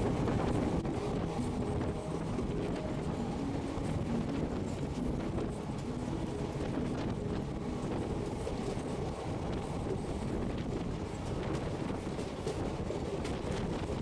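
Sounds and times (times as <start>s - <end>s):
train wheels rumbling on rails: 0.0s - 14.0s.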